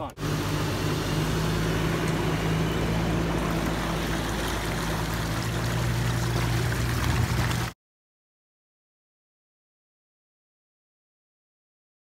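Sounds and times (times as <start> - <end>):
pickup truck engine running: 0.2 - 7.7
water sloshing around wheels: 0.2 - 7.8.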